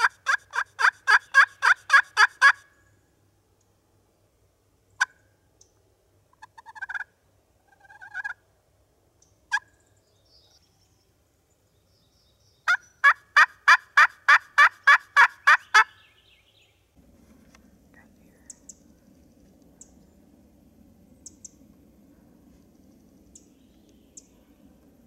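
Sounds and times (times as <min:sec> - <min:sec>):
turkey yelping: 0:00.0 - 0:02.6, 0:06.4 - 0:07.1, 0:07.7 - 0:08.4, 0:12.7 - 0:15.9.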